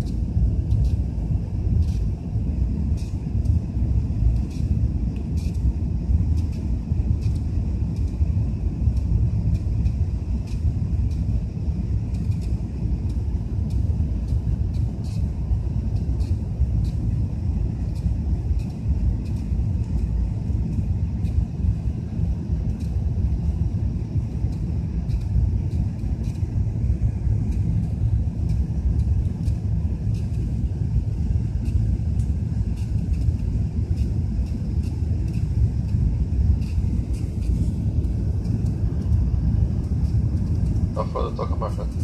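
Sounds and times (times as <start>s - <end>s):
airplane cabin engine rumble: 0.0s - 42.0s
faint light ticks: 4.3s - 5.7s, 6.4s - 8.2s, 18.0s - 20.1s.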